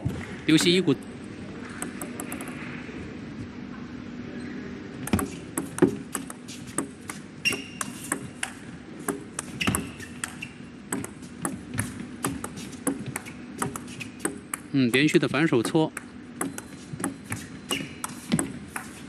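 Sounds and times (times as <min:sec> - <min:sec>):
table tennis ball hits: 0:01.7 - 0:02.6, 0:05.1 - 0:19.0.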